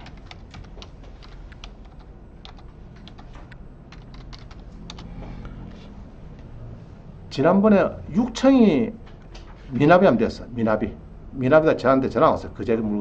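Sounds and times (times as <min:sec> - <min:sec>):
computer keyboard typing: 0:00.0 - 0:05.1.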